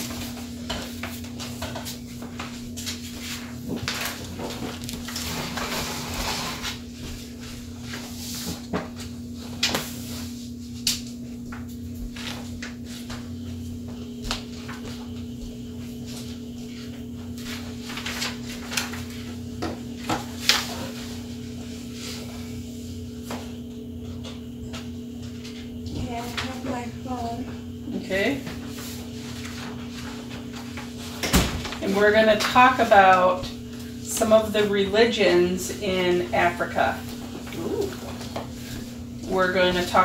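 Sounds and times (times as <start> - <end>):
steady low hum: 0.0 - 40.0
paper rustling: 17.6 - 19.3.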